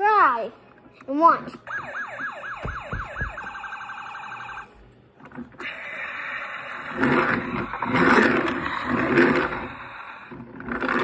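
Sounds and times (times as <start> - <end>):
toy siren yelps and warble: 1.6 - 4.7
rough noisy sound: 5.2 - 11.0.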